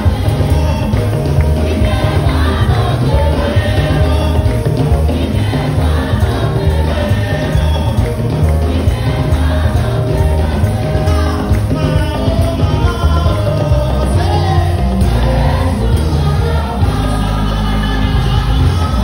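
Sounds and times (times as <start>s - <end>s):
congregation singing along: 0.0s - 19.0s
lead singer on microphone: 0.0s - 19.0s
pulsing bass beat: 0.0s - 19.0s.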